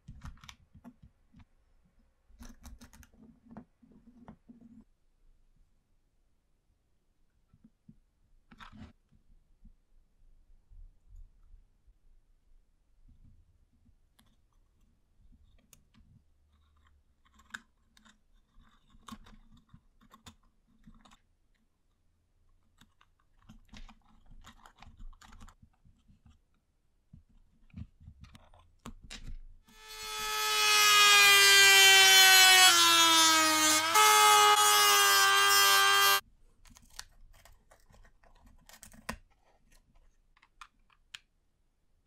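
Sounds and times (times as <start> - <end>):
rotary tool whining: 29.7 - 36.2.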